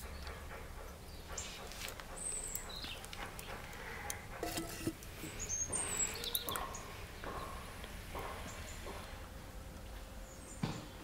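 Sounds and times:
small birds chirping: 0.0s - 4.4s, 5.1s - 9.3s, 10.2s - 11.0s
pot clinking on metal grate: 4.4s - 5.3s.

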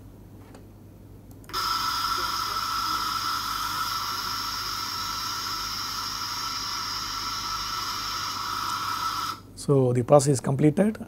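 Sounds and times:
laser welding hiss: 1.5s - 9.5s.

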